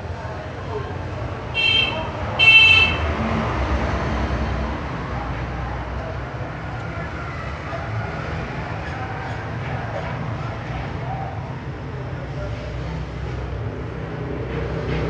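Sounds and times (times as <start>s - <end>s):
traffic rumble: 0.0s - 15.0s
vehicle horn tooting: 1.6s - 3.1s.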